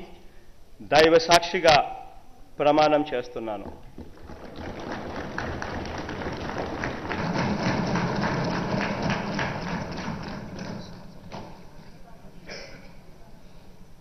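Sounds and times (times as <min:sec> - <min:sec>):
people thumping wooden desks: 0:03.6 - 0:12.0.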